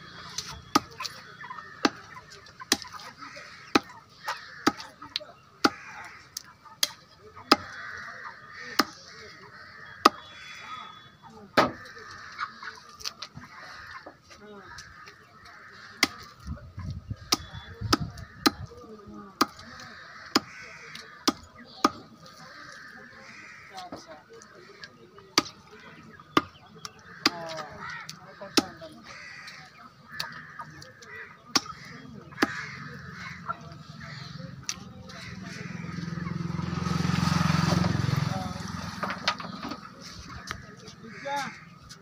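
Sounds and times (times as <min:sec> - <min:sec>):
birds honking: 0:00.0 - 0:42.0
cleaver chopping on wooden block: 0:06.8 - 0:07.8, 0:11.6 - 0:11.8, 0:17.3 - 0:18.7, 0:20.3 - 0:20.5, 0:28.5 - 0:28.8, 0:32.4 - 0:32.7.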